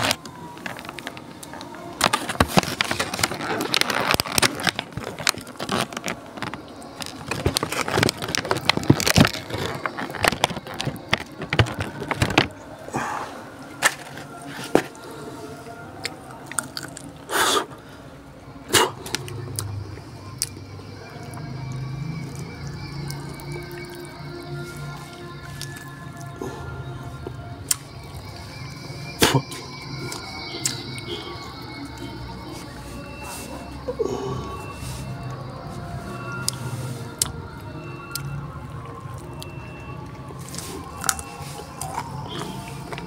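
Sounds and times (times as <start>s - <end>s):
cats crunching food: 0.0s - 12.6s.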